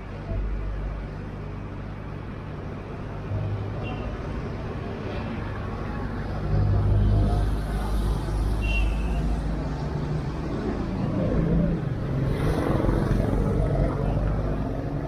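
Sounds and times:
street noise: 0.0s - 15.0s
vehicle engine humming: 0.0s - 15.0s.

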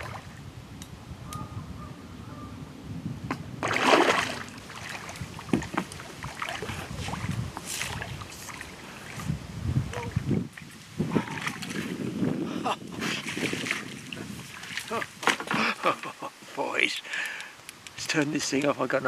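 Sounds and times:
fish splashing at surface: 3.6s - 8.7s
sharp clicks: 17.1s - 18.8s.

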